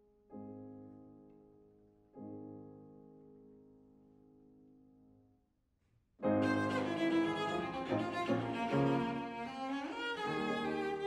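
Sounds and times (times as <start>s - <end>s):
grand piano accompaniment: 0.0s - 5.0s, 6.2s - 11.0s
cello bowing a melody: 6.2s - 11.0s.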